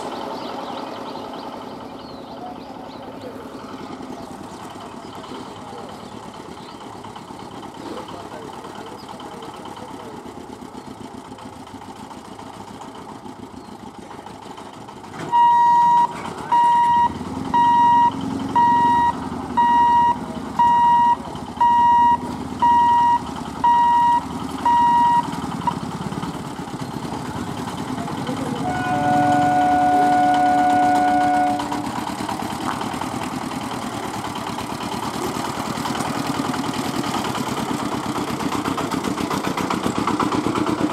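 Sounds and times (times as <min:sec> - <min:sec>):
motorcycle engines running: 0:00.0 - 0:40.9
level crossing warning buzzer: 0:15.3 - 0:25.3
vehicle horn: 0:28.6 - 0:31.9.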